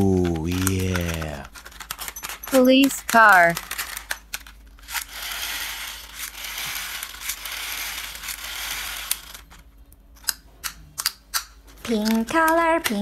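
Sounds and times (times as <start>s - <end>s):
plastic toy clicks: 10.2s - 13.0s.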